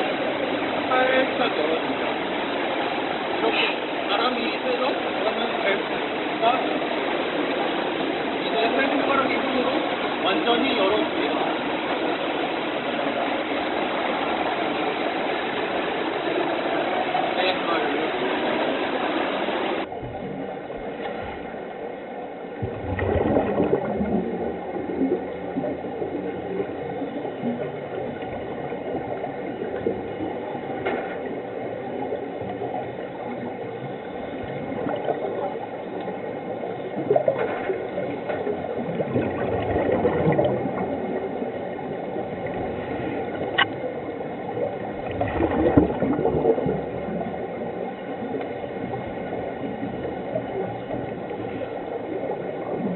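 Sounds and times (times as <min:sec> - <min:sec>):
bubbles gurgling underwater: 0:22.4 - 0:52.9.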